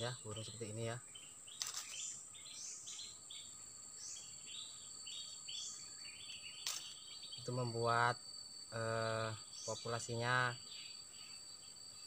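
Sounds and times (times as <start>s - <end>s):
bird chirping: 0.0s - 12.0s
high-pitched insect drone: 0.0s - 12.0s
sharp clicks: 1.6s - 2.0s, 6.6s - 7.0s.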